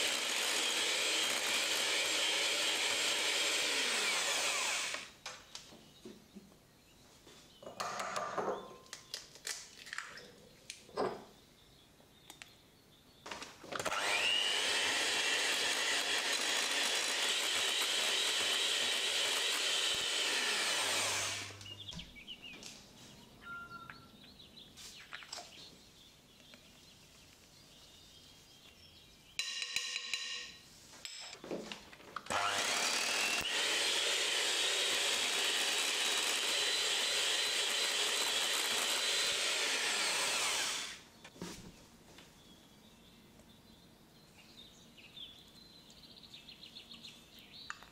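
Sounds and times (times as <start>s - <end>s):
electric hand mixer whirring: 0.0s - 5.1s, 13.8s - 21.6s, 32.3s - 41.0s.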